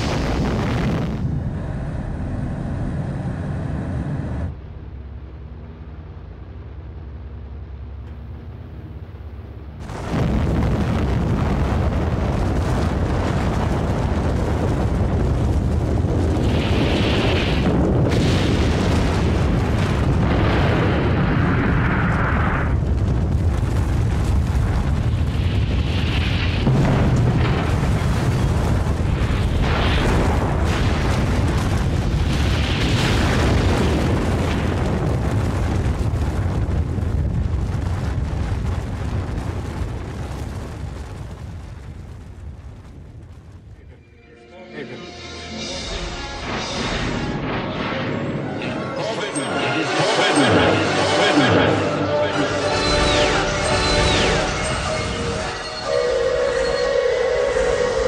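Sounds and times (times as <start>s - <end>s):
huge explosion rumble: 0.0s - 4.6s, 9.8s - 43.9s.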